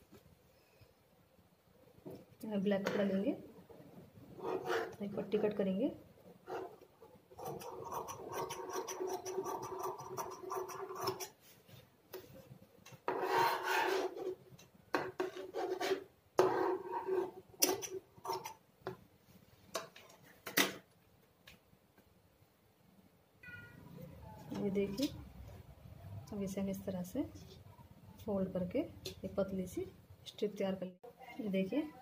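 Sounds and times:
scissors cutting cloth: 7.4s - 11.4s.

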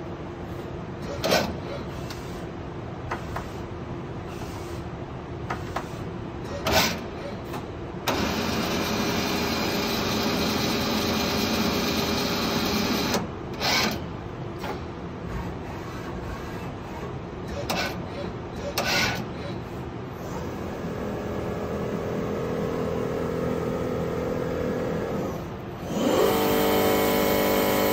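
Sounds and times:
loud steady machine noise: 8.0s - 14.0s, 15.3s - 27.9s.

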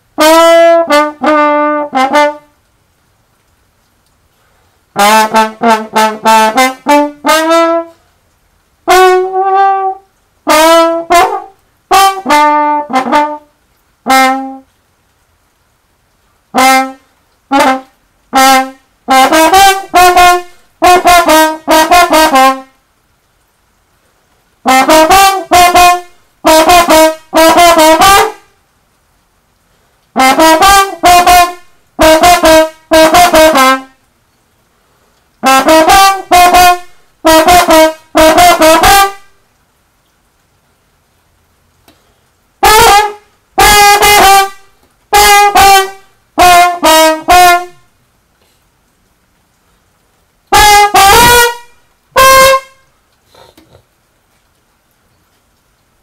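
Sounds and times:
trombone playing tongued notes: 0.0s - 2.6s, 4.9s - 8.1s, 8.8s - 14.8s, 16.5s - 22.8s, 24.6s - 28.6s, 30.1s - 34.0s, 35.4s - 39.4s, 42.6s - 47.9s, 50.5s - 53.9s.

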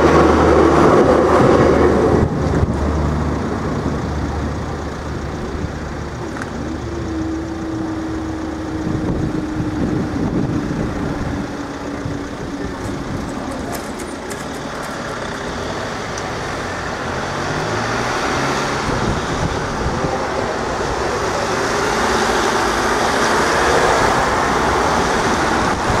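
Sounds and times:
cars and vans driving by: 0.0s - 26.0s.

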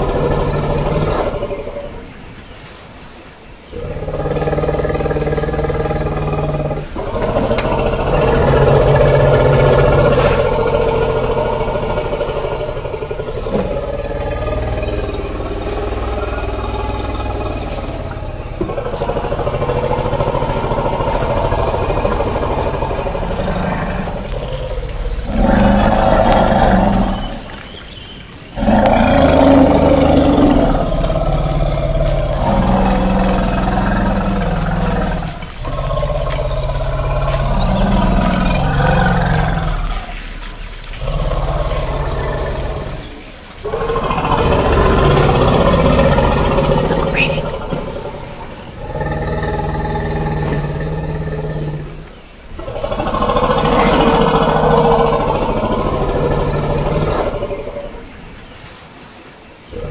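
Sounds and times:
elephant calls: 18.7s - 49.8s.

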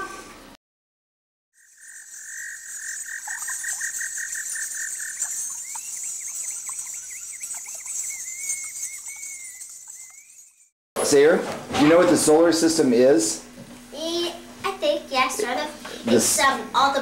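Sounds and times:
pulsing animal call: 1.6s - 10.7s
high-pitched insect buzz: 1.6s - 10.8s
quick chirps: 1.6s - 10.8s.

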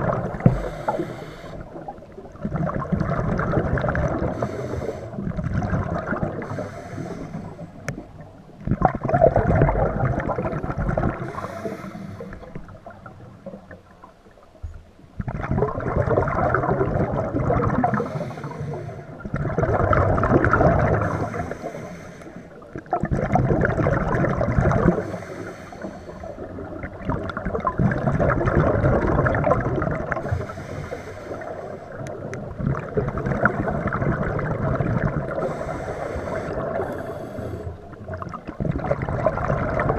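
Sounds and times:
exhaled bubbles gurgling: 0.0s - 39.9s
regulator inhalation: 0.5s - 1.8s, 4.3s - 5.2s, 6.4s - 7.8s, 11.2s - 12.5s, 17.9s - 19.1s, 21.0s - 22.6s, 25.0s - 26.5s, 30.2s - 32.0s, 35.4s - 37.8s.

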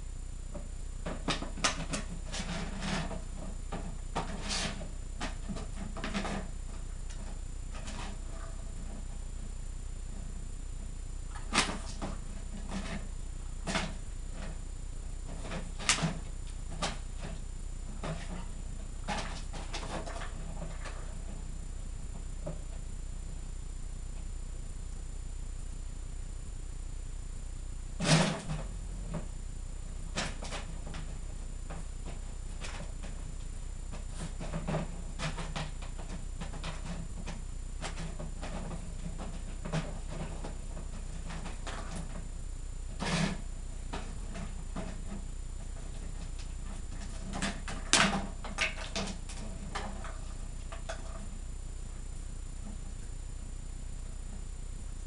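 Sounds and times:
plastic bottles knocking and rattling: 42.9s - 51.4s.

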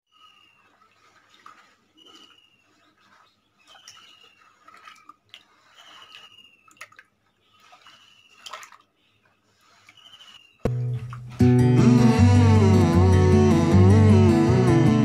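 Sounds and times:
hand squelching wet clay: 0.6s - 11.4s.

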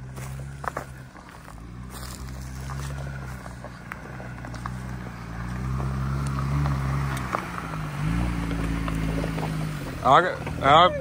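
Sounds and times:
tyres crunching over stones: 0.0s - 10.7s
off-road vehicle engine running: 0.0s - 11.0s.

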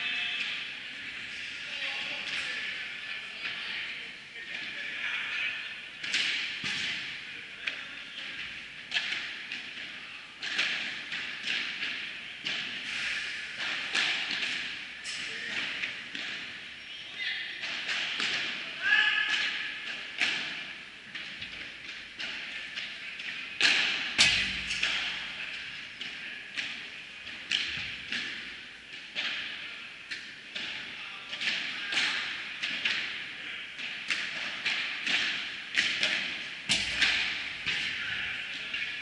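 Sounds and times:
padel ball struck with paddles: 13.6s - 14.8s, 17.5s - 18.6s, 19.3s - 33.2s, 33.8s - 38.0s.

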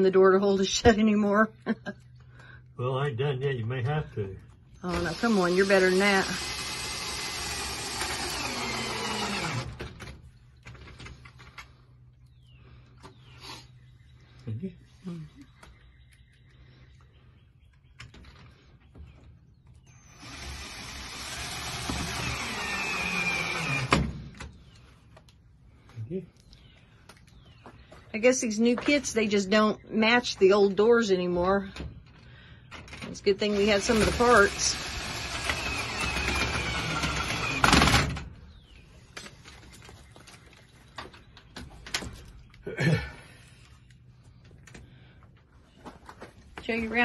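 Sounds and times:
cordless drill whining: 4.8s - 10.0s, 19.9s - 24.4s, 33.4s - 38.1s.

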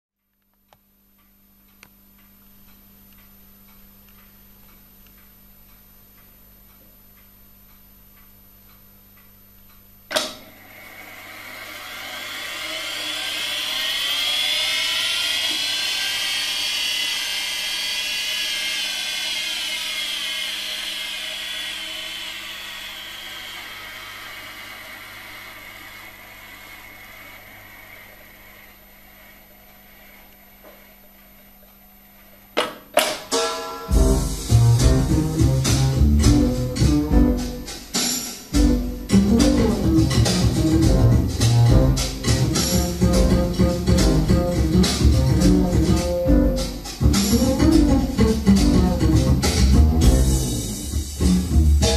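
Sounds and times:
tape spooling whine: 7.8s - 32.5s, 33.9s - 51.9s
tape recorder transport click: 10.1s - 10.5s.

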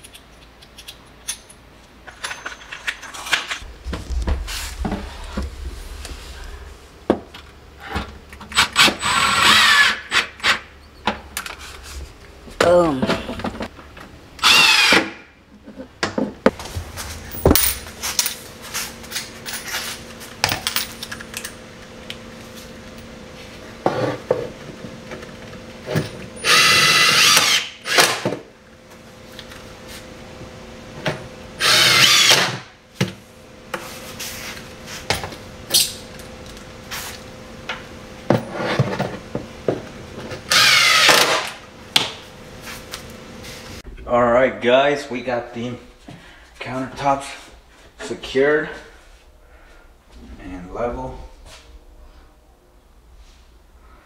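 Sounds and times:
impact driver driving screws: 26.4s - 28.3s, 31.6s - 32.6s, 40.5s - 41.5s.

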